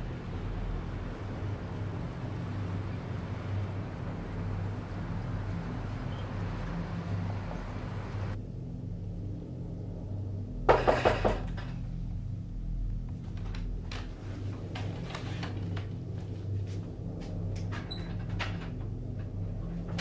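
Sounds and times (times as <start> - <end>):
low hum: 0.0 - 20.0
wooden door clattering: 10.7 - 11.8.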